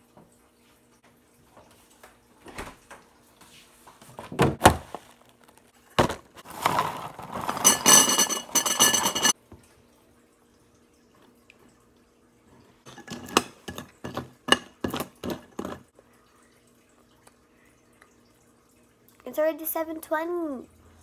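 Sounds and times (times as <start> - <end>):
handling knocks and thump: 4.2 - 5.0, 6.0 - 6.9
cereal pouring into a bowl: 4.9 - 8.0.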